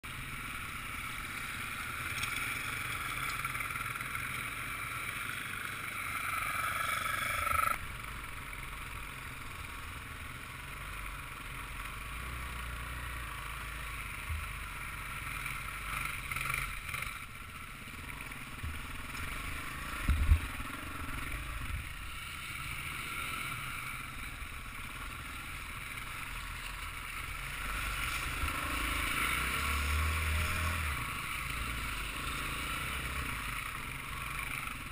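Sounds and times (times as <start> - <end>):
motorbike engine running: 0.1 - 34.9.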